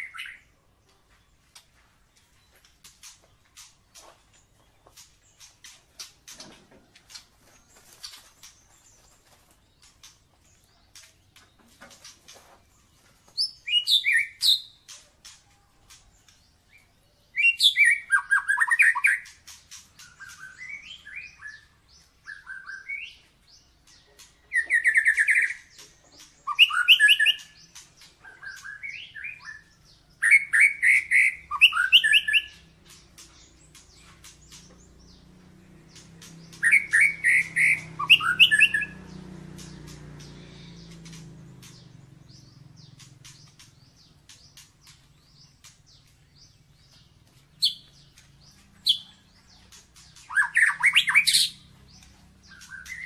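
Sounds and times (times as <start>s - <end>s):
bird singing whistles and trills: 13.4s - 14.9s, 16.8s - 23.3s, 23.9s - 53.0s.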